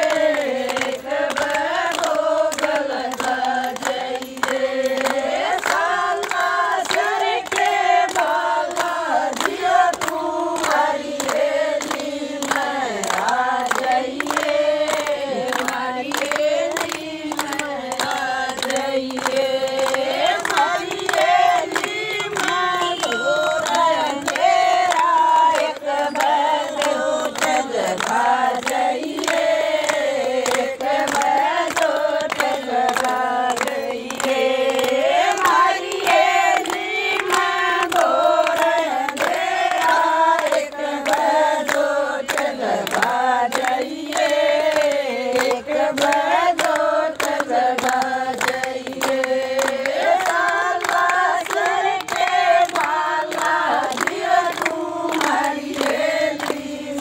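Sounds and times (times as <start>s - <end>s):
rhythmic hand clapping: 0.0s - 57.0s
women singing devotional song: 0.0s - 57.0s.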